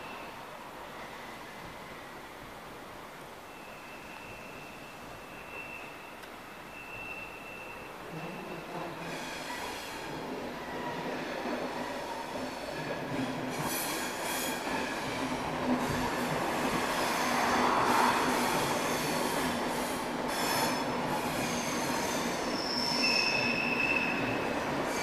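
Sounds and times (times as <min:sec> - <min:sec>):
train wheels rumbling on rail: 0:04.1 - 0:25.0
high-pitched wheel squeal: 0:06.7 - 0:09.6, 0:21.4 - 0:25.0.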